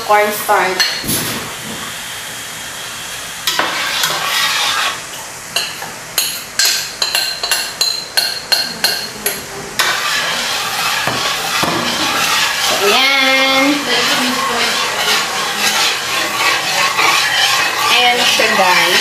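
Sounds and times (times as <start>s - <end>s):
spatula scraping metal pot: 3.5s - 5.0s, 8.5s - 19.0s.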